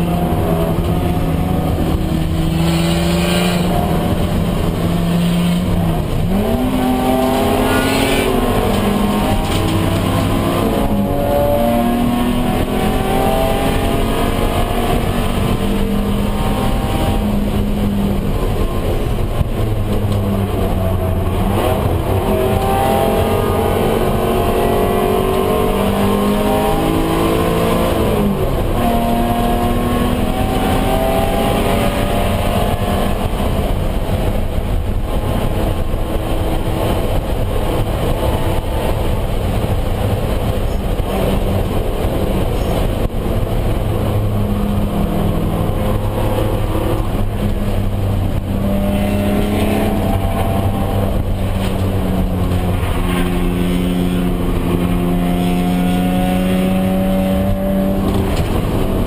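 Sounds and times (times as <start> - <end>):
race car engine revving: 0.0 - 59.0
road and wind noise: 0.0 - 59.0.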